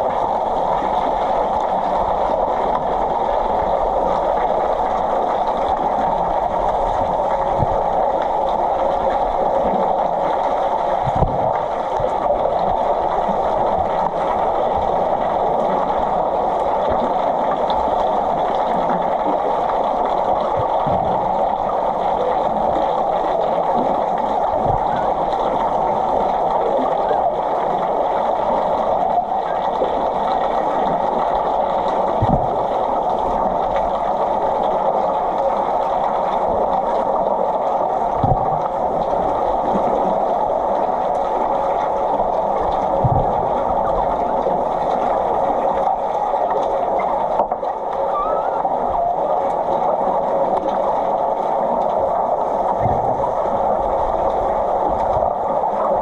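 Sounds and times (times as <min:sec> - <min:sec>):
muffled underwater pool noise: 0:00.0 - 0:56.0
low knocks underwater: 0:11.0 - 0:12.3, 0:20.5 - 0:21.3, 0:24.5 - 0:25.6, 0:32.1 - 0:32.6, 0:38.2 - 0:38.7, 0:42.9 - 0:43.8, 0:52.7 - 0:53.6.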